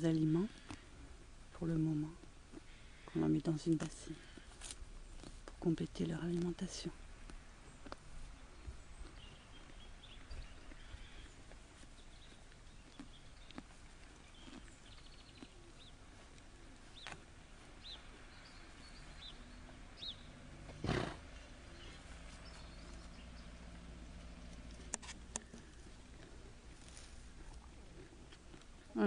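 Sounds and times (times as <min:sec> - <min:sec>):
pony snorting: 0:20.5 - 0:21.9
small bird chirps: 0:21.3 - 0:23.6.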